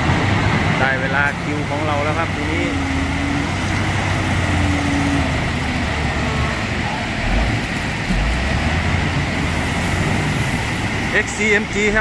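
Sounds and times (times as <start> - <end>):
diesel loader engine rumbling: 0.0 - 12.0.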